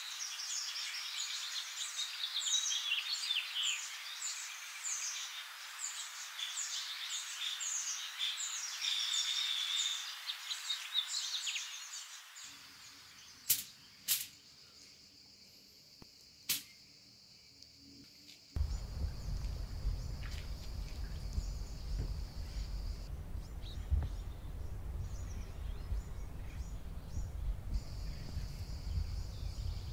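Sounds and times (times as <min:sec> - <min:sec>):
birds chirping: 0:18.6 - 0:29.9.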